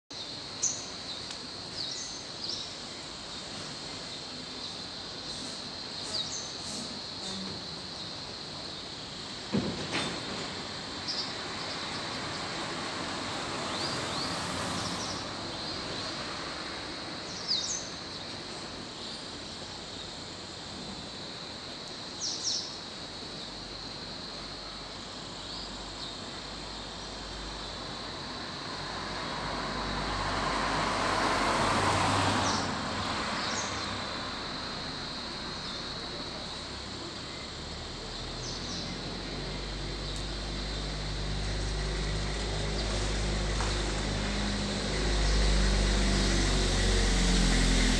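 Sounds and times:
background hiss: 0:00.1 - 0:47.9
vehicle passing: 0:12.2 - 0:16.9, 0:28.5 - 0:47.9.

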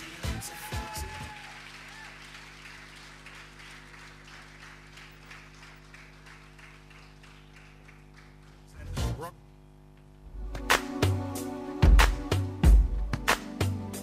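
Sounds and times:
audience applauding: 0:00.0 - 0:08.9.

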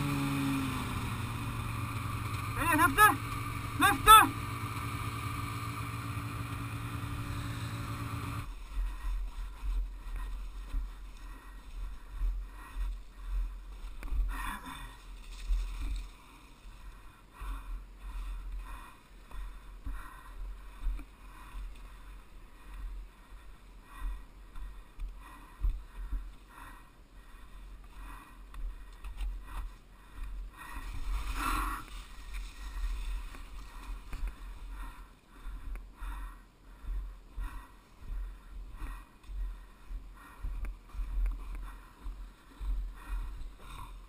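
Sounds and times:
snowmobile engine rumble: 0:00.0 - 0:19.6, 0:30.0 - 0:35.3, 0:36.7 - 0:44.0.

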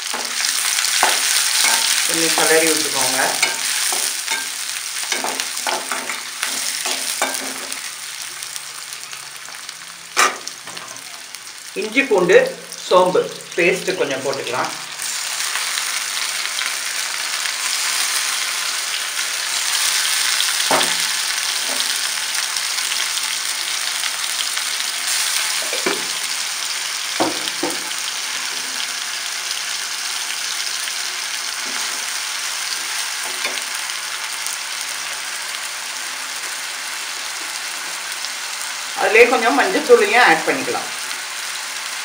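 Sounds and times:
oil sizzling in a pan: 0:00.0 - 0:42.0.

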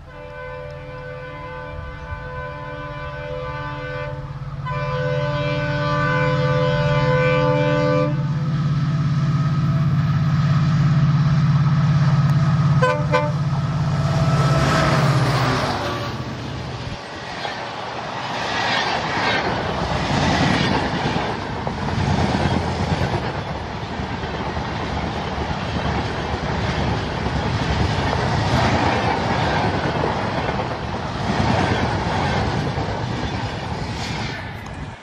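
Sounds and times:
locomotive horn toot: 0:00.0 - 0:08.4, 0:12.8 - 0:16.4
diesel locomotive engine drone: 0:00.0 - 0:35.0.

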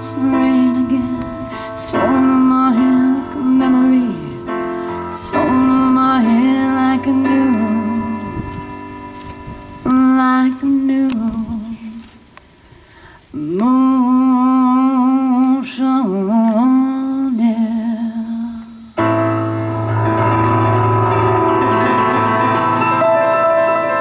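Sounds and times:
piano chords: 0:00.0 - 0:12.2, 0:13.4 - 0:24.0
person singing with vibrato: 0:00.0 - 0:12.4, 0:13.2 - 0:19.4.

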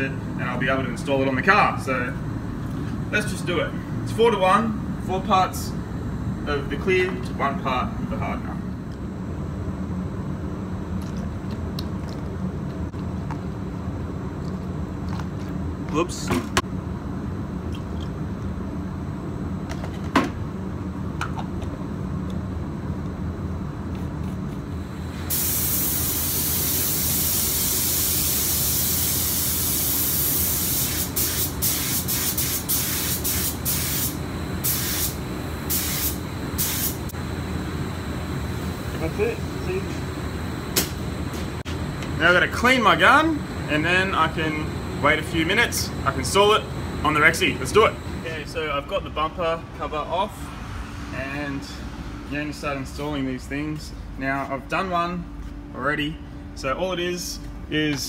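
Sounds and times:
low mechanical hum: 0:00.0 - 0:58.0
spray gun hissing: 0:25.1 - 0:37.2.

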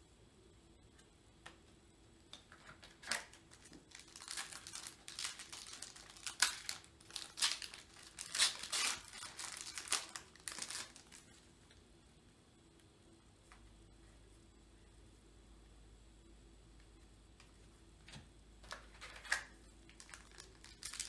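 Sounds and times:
cards rustling: 0:02.4 - 0:11.4, 0:18.6 - 0:21.0
foil wrapper crinkling and tearing: 0:02.5 - 0:11.4, 0:18.7 - 0:21.0.

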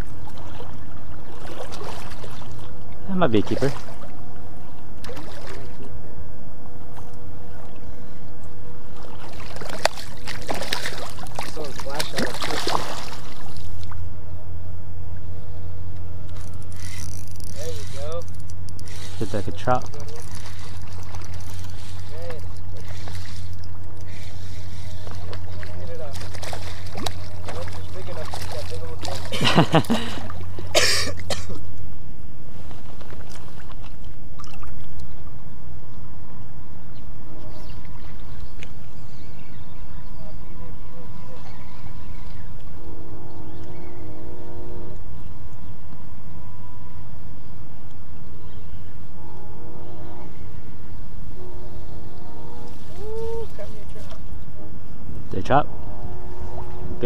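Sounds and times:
fish splashing in shallow water: 0:00.0 - 0:06.1, 0:06.9 - 0:14.1, 0:16.3 - 0:31.7, 0:32.5 - 0:35.5
steady low rumble: 0:00.0 - 0:57.0.

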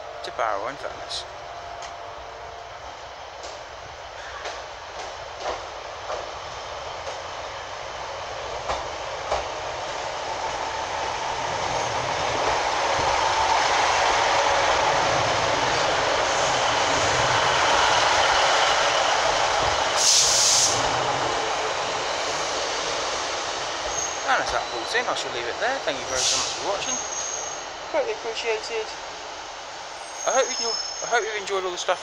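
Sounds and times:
diesel train engine: 0:00.0 - 0:32.0
train wheel noise: 0:00.0 - 0:32.0
short hiss: 0:20.0 - 0:20.9.

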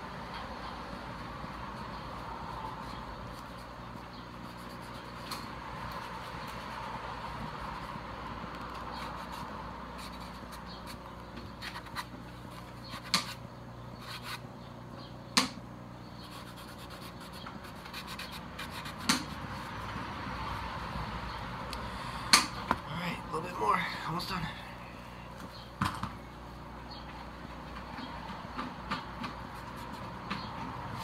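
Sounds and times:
rag rubbing plastic helmet: 0:01.8 - 0:08.0, 0:08.6 - 0:13.4.

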